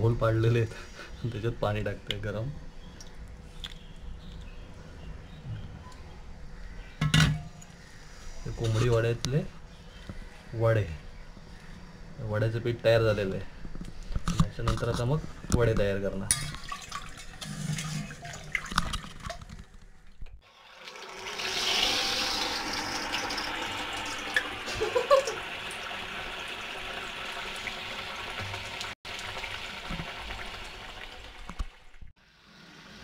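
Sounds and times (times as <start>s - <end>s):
dough deep-frying in oil: 20.4s - 33.0s.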